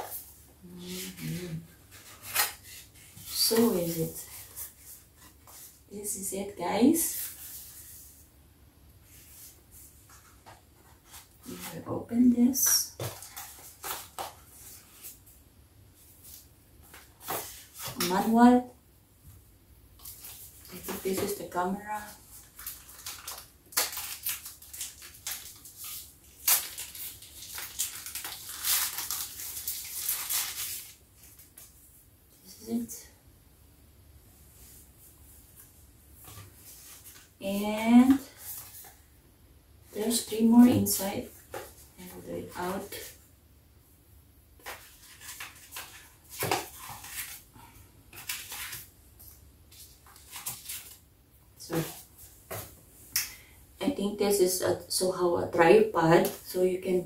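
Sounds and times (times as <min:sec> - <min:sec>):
packaging wrapper crinkling: 0:22.4 - 0:31.5.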